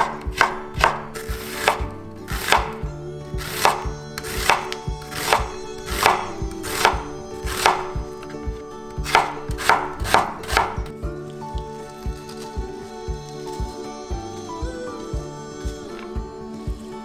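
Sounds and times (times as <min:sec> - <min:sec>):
knife slicing onion on board: 0:00.0 - 0:02.8, 0:03.4 - 0:07.9, 0:09.0 - 0:10.8.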